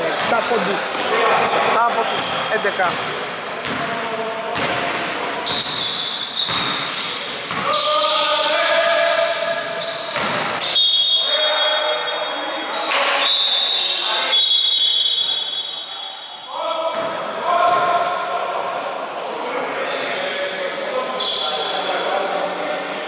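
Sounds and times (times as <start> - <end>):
sneakers squeaking on court: 0.0 - 11.0
players calling out: 0.0 - 13.1
basketball bouncing: 4.6 - 5.0, 6.5 - 6.8, 10.1 - 10.5.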